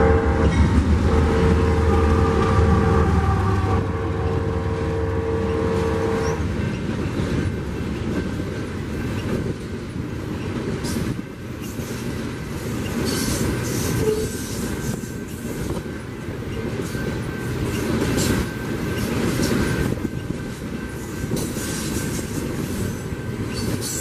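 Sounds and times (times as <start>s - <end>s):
train wheels clattering on rail: 0.0s - 2.7s, 5.4s - 24.0s
locomotive horn chord: 0.0s - 6.4s.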